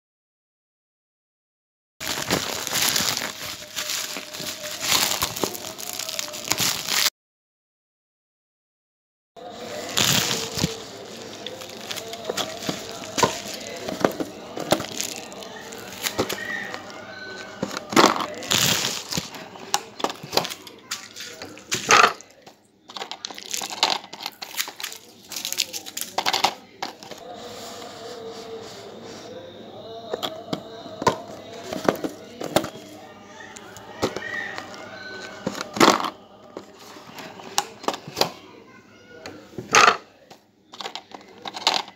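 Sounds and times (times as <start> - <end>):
clatter on a tabletop: 40.8 - 41.9.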